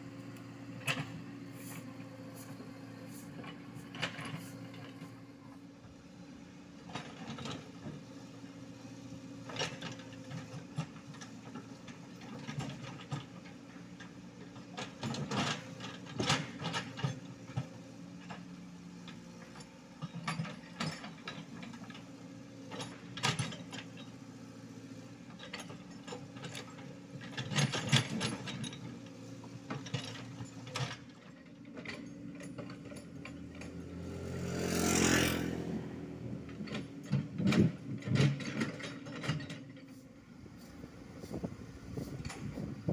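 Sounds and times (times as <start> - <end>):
diesel engine running: 0.0 - 12.9, 28.0 - 42.9
excavator bucket clanking and scraping: 0.8 - 5.3, 9.4 - 18.5, 19.1 - 24.2, 25.2 - 34.0, 34.8 - 42.9.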